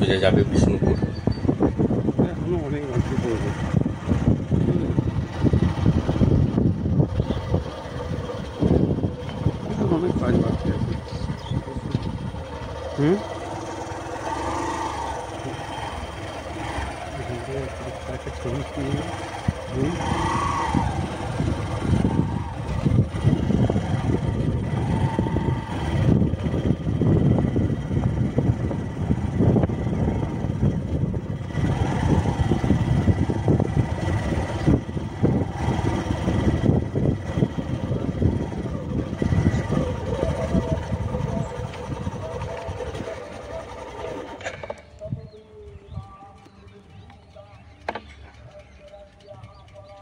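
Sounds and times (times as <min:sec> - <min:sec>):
wind buffeting microphone: 0:00.0 - 0:50.0.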